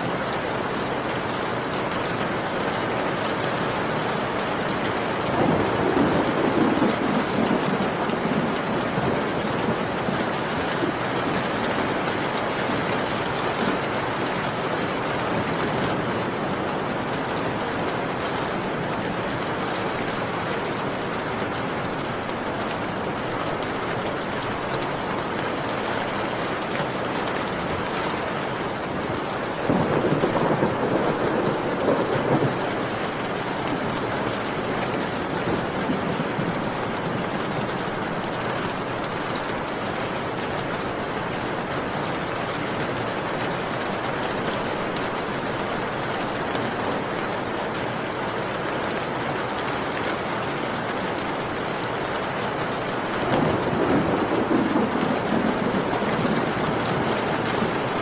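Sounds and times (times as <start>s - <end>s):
steady rain: 0.0s - 58.0s
thunder rumbling: 5.2s - 13.9s, 29.6s - 38.8s, 53.2s - 58.0s.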